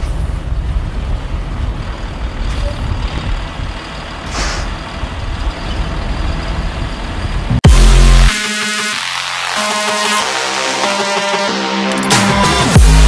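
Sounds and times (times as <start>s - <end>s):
bus engine rumbling: 0.0s - 13.0s
air brake hiss: 4.2s - 4.8s.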